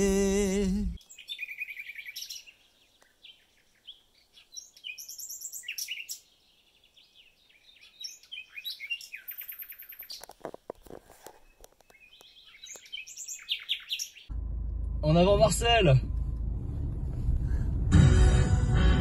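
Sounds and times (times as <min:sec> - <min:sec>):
song with singing voice: 0:00.0 - 0:01.0
songbird chirping: 0:00.0 - 0:14.4.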